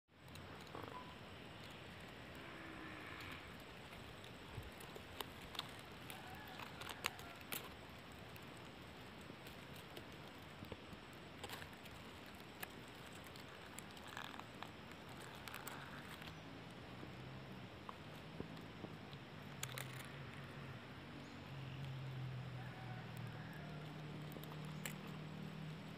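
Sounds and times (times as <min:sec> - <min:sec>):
faint outdoor hiss: 0:00.1 - 0:25.9
small sharp clicks: 0:17.9 - 0:20.6, 0:23.9 - 0:25.9.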